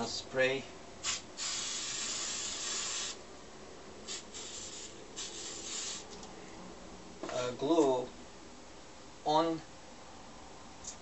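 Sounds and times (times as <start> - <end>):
aerosol can spraying: 1.0 - 3.2, 4.0 - 6.1.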